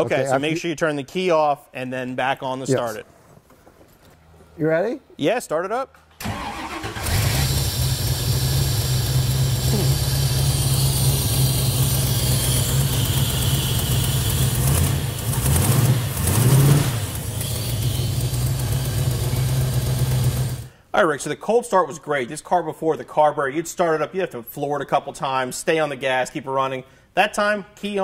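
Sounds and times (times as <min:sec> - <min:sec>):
car engine cranking and starting: 0:06.2 - 0:20.7
car engine idling: 0:06.3 - 0:20.7.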